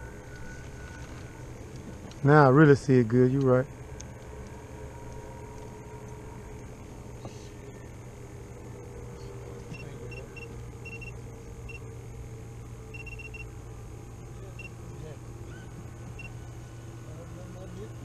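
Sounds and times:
steady low hum: 0.0 - 18.0
short high electronic beeps: 9.7 - 11.1, 13.0 - 13.5.

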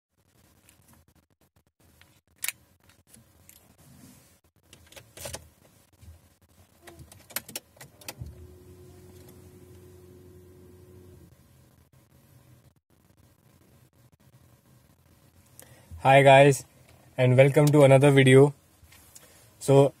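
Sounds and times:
steady low hum: 5.5 - 20.0
sharp clicks inside a car: 6.8 - 9.9
faint steady tone: 7.9 - 20.0.

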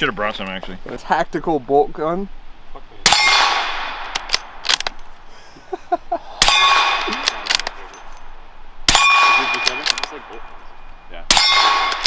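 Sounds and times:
metallic clang ringing: 3.1 - 3.6, 6.4 - 12.0.

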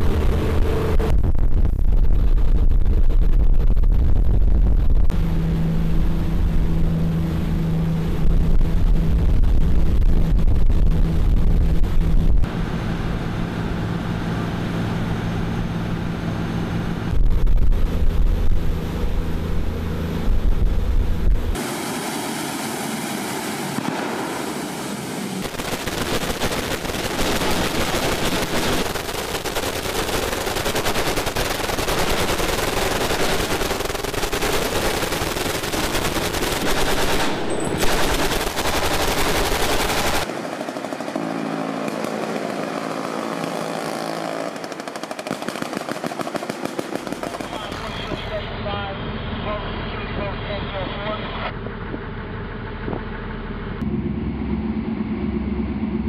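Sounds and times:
boat engine: 5.1 - 56.0
rushing water: 21.6 - 25.2
machine guns firing bursts: 25.4 - 48.2.

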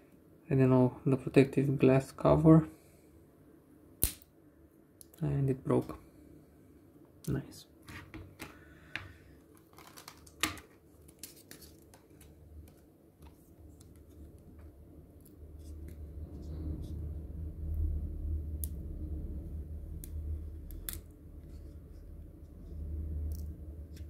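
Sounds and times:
low rumble: 14.6 - 24.0.

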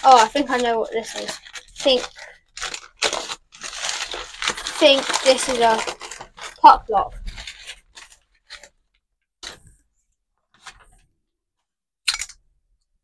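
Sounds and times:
packing paper rustling and crinkling: 0.0 - 9.7.

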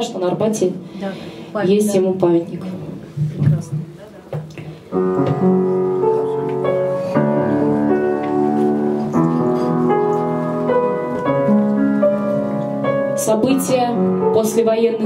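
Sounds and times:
piano playing held chords: 4.8 - 15.0.

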